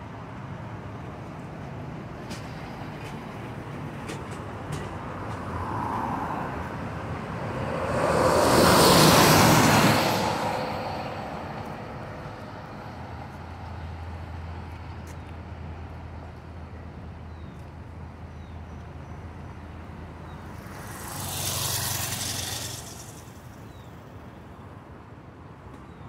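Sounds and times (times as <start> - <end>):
traffic engine hum: 0.0 - 26.0
motorcycle passing close: 20.3 - 24.0.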